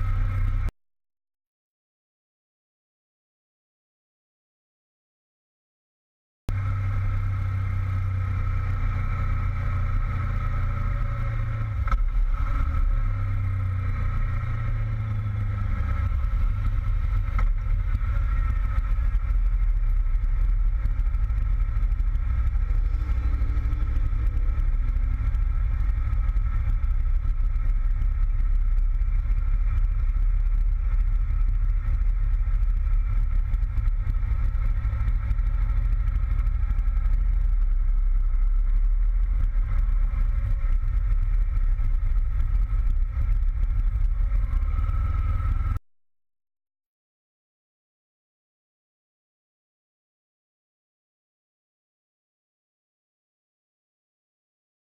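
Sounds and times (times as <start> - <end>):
motorcycle engine running: 0.0 - 0.7, 6.5 - 45.8
low wind rumble: 6.5 - 45.8.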